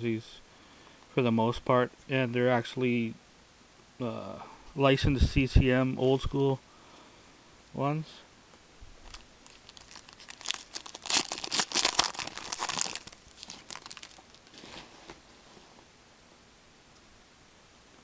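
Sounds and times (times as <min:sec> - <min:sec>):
wrapper tearing and crinkling: 0:09.0 - 0:15.1.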